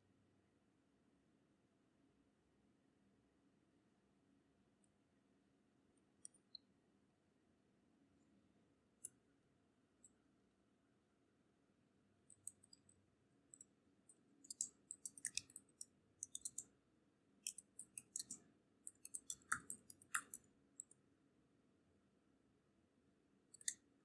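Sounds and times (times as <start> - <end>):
keyboard typing clicks: 12.3 - 12.9, 14.4 - 16.7, 17.4 - 20.9, 23.6 - 23.8.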